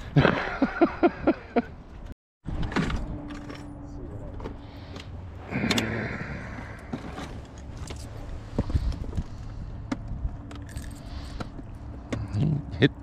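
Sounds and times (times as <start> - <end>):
steady low rumble: 3.0 - 13.0.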